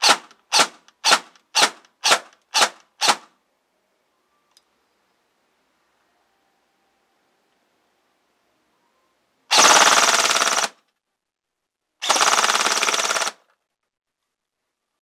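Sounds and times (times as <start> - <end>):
airsoft rifle full-auto bursts: 0.0 - 3.3, 9.5 - 10.8, 12.0 - 13.4.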